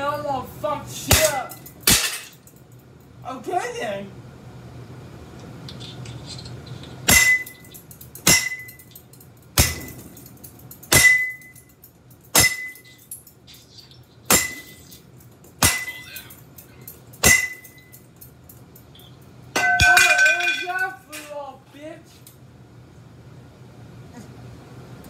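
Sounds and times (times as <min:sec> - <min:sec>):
bat clanking on metal light fixture: 0:01.1 - 0:02.4, 0:07.1 - 0:11.6, 0:12.3 - 0:13.0, 0:14.3 - 0:14.9, 0:15.5 - 0:16.3, 0:17.1 - 0:18.0, 0:19.5 - 0:21.4.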